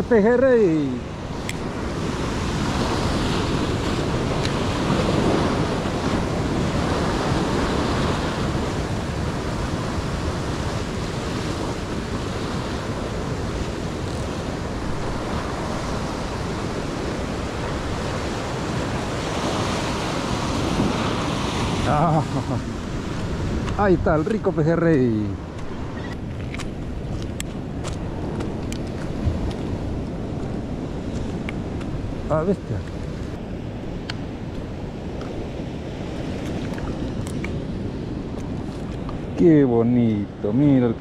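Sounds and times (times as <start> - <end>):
ocean surf on rocks: 0.0 - 41.0.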